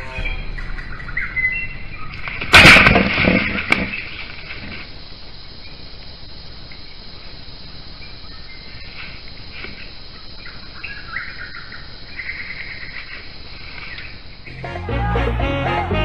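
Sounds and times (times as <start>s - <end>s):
birds chirping: 0.0s - 2.5s
high insect drone: 3.5s - 16.0s.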